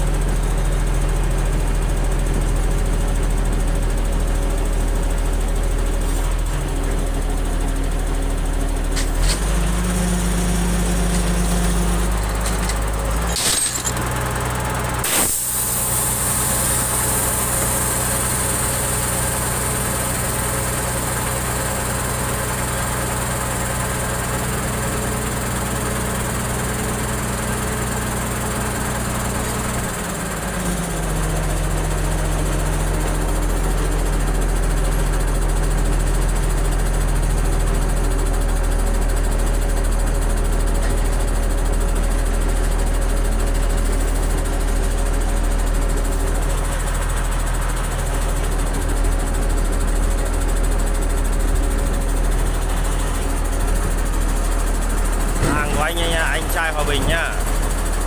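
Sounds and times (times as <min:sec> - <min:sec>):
heavy engine running under load: 0:00.0 - 0:58.0
hiss: 0:15.0 - 0:18.0.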